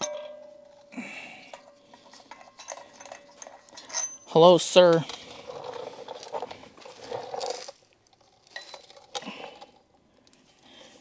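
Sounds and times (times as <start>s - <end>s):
metal bolts clinking: 0.0s - 5.8s.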